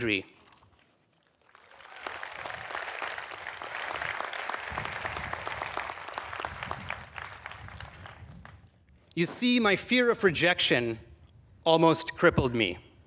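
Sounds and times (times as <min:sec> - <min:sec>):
crowd clapping: 0:01.3 - 0:08.7.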